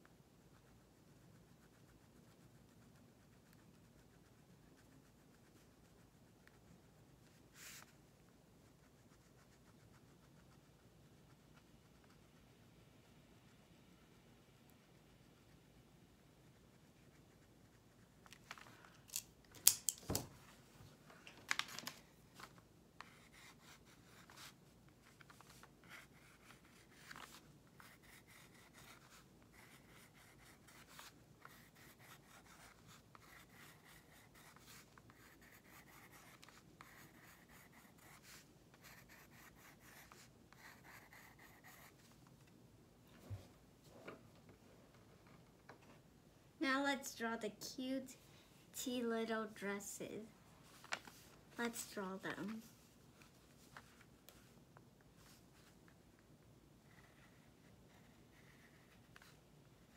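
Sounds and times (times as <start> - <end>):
pencil scratching on paper: 0.2 - 12.8, 14.6 - 18.2, 23.0 - 42.1, 56.8 - 59.9.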